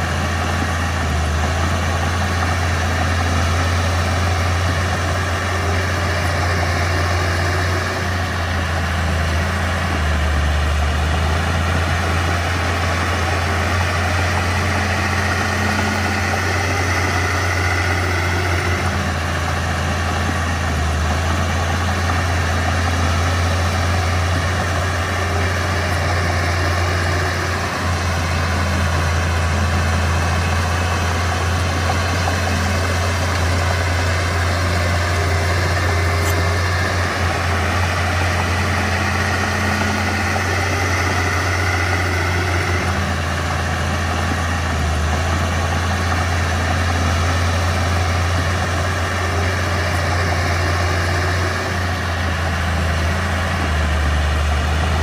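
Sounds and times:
bulldozer diesel engine running: 0:00.0 - 0:55.0.

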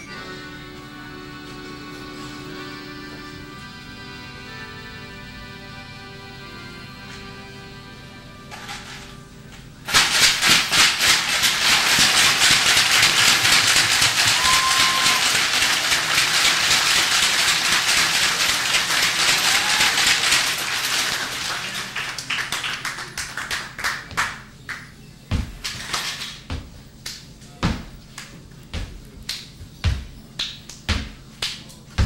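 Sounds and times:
audience applauding: 0:10.0 - 0:24.8
high whoop: 0:14.2 - 0:15.4, 0:19.4 - 0:20.2.

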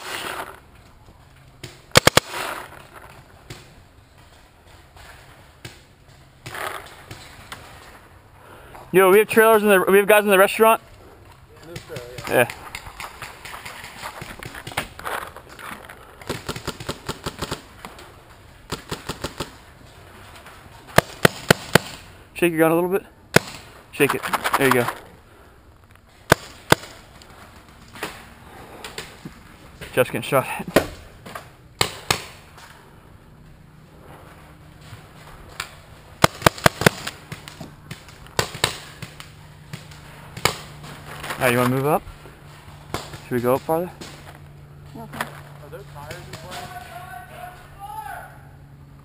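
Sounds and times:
paintball guns firing: 0:00.0 - 0:00.6, 0:01.6 - 0:08.0, 0:11.6 - 0:19.8, 0:20.8 - 0:22.1, 0:23.3 - 0:25.1, 0:26.2 - 0:32.8, 0:35.5 - 0:44.4, 0:46.0 - 0:47.2.

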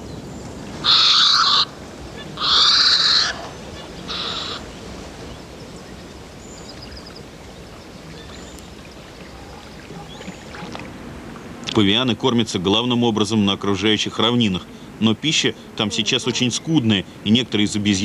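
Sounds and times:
heron hoarse calls: 0:00.8 - 0:04.8.

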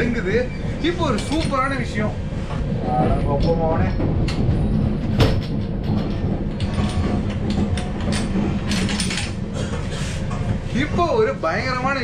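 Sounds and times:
train coach rumble: 0:00.0 - 0:12.0
carriage rattles and clacks: 0:01.0 - 0:01.8, 0:03.0 - 0:11.0.

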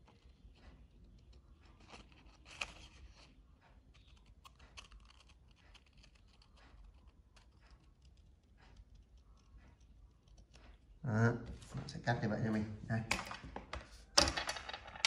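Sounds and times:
scissors snipping paper: 0:01.1 - 0:10.9.

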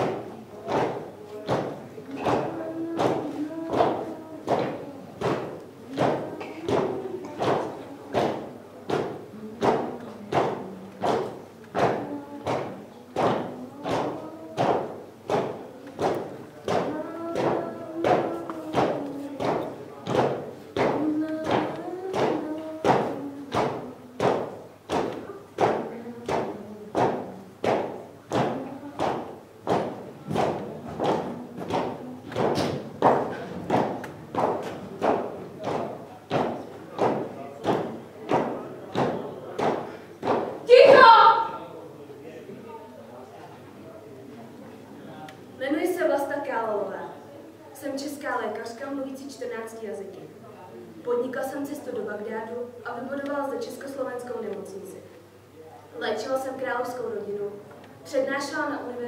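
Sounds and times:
echoing thumps: 0:00.0 - 0:41.6.

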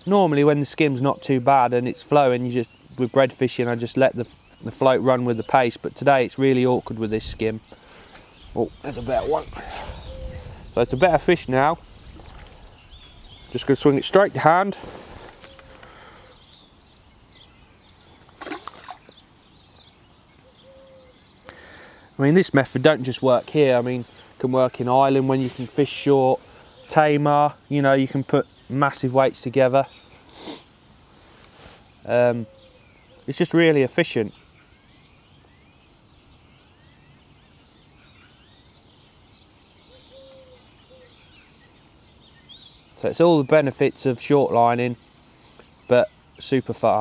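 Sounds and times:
bird chirps: 0:01.0 - 0:29.1, 0:29.8 - 0:47.0
water splash: 0:18.4 - 0:19.1.

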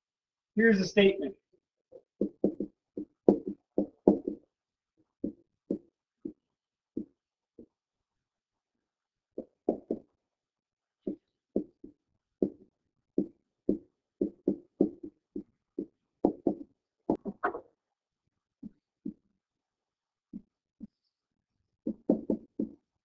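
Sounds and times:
stylus tapping on pen tablet: 0:02.0 - 0:04.5, 0:05.2 - 0:06.4, 0:09.4 - 0:10.1, 0:11.1 - 0:12.6, 0:13.2 - 0:17.5, 0:21.9 - 0:22.8.

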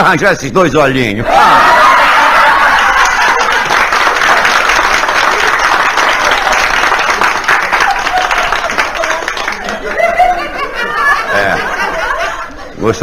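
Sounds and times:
audience laughing: 0:01.4 - 0:04.6, 0:07.6 - 0:13.0
audience clapping: 0:01.9 - 0:10.5.

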